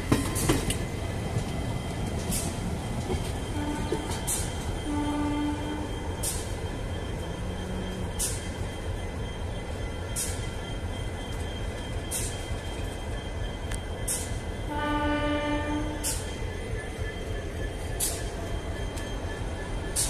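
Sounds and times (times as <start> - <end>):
train rolling with low rumble: 0.0 - 20.0
train horn: 3.5 - 6.0, 14.7 - 16.1.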